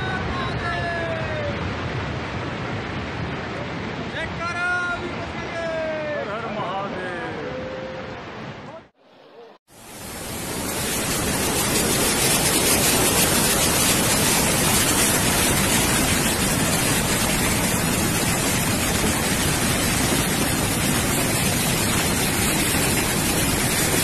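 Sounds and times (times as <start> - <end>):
fast river rushing: 0.0 - 9.0, 9.7 - 24.0.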